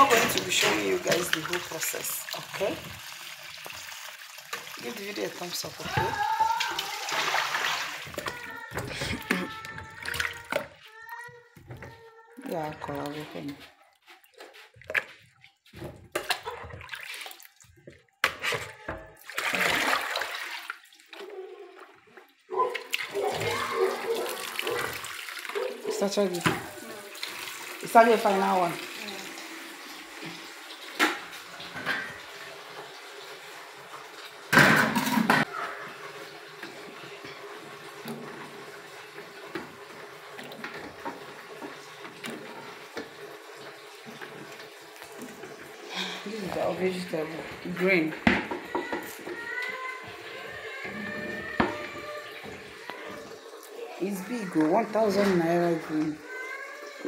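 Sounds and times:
water running into metal sink: 0.0 - 13.6, 15.7 - 57.0
hands splashing in bucket of water: 6.4 - 10.8, 14.2 - 18.4, 19.2 - 21.2
splash in pot of water: 6.6 - 8.3, 19.2 - 20.9.

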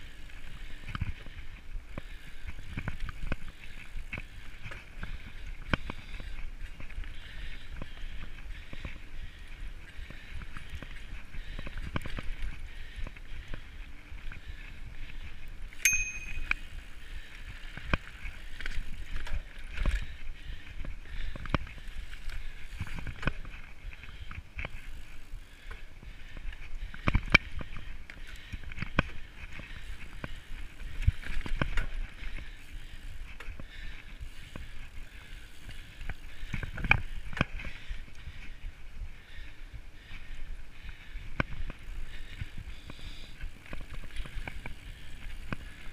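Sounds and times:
bike tyres on dirt trail: 0.0 - 45.9
brief high ring: 15.9 - 16.6.

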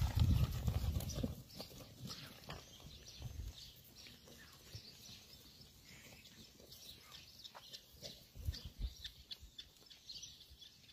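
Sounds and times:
sheep hooves scuffing on stones: 0.0 - 8.7.

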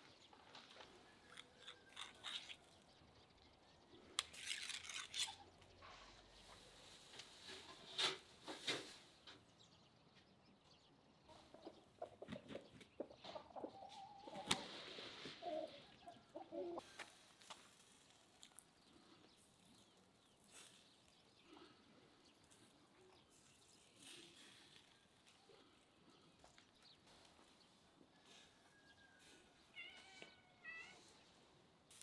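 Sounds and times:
chickens clucking: 11.2 - 17.6.

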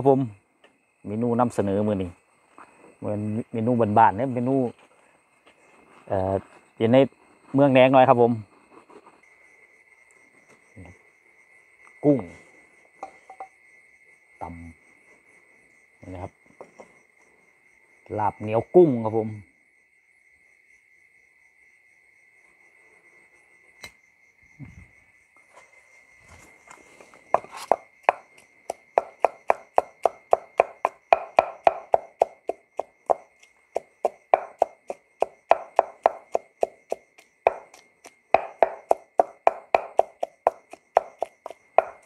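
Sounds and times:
crickets trilling: 0.0 - 42.0
pestle pounding in stone mortar: 27.4 - 42.0.

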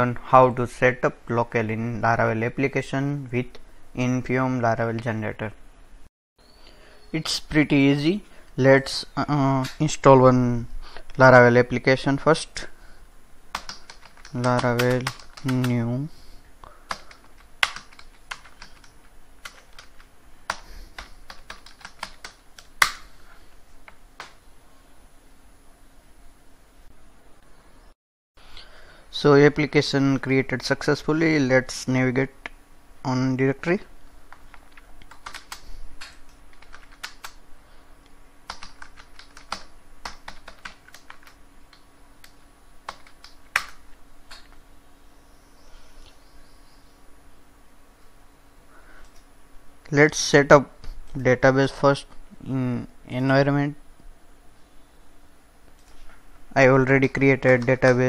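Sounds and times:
keyboard keys clicking: 13.5 - 15.8, 16.9 - 23.0, 34.3 - 37.4, 38.5 - 44.6.

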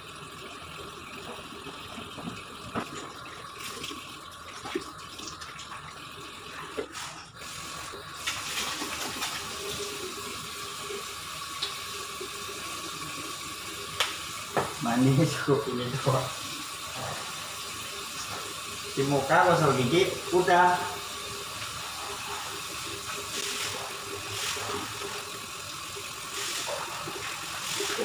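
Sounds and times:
tap water splashing into basin: 1.2 - 6.0, 13.9 - 15.3, 26.2 - 28.0.

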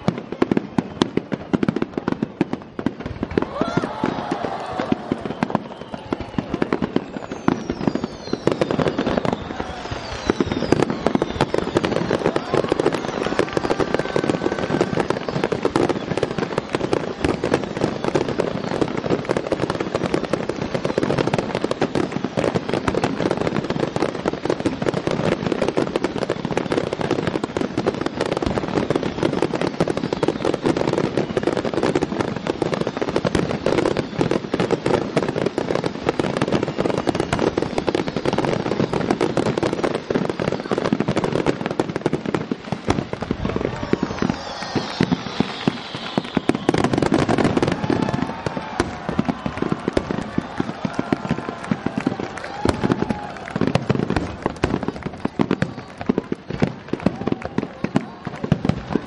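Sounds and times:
fireworks bursting and crackling: 0.0 - 59.0
firework whistles: 0.1 - 57.8.

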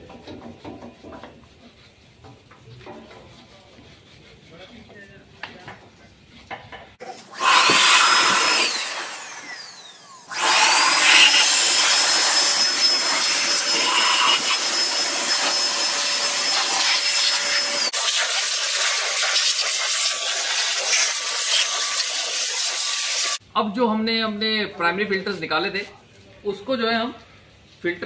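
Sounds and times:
electric blower whine: 7.0 - 23.4.

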